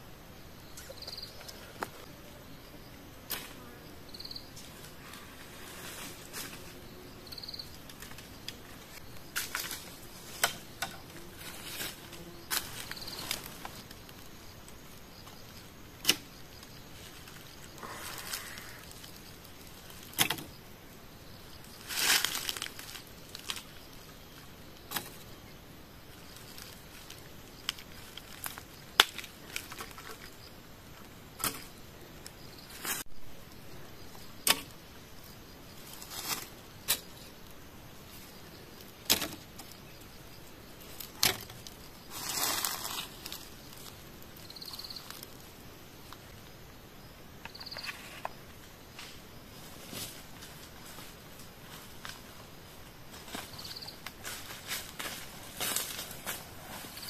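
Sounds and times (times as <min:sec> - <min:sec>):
rustling dry leaf litter: 0:04.5 - 0:15.6, 0:16.4 - 0:20.2, 0:21.2 - 0:25.4, 0:26.0 - 0:30.5, 0:35.7 - 0:46.4, 0:49.5 - 0:57.0.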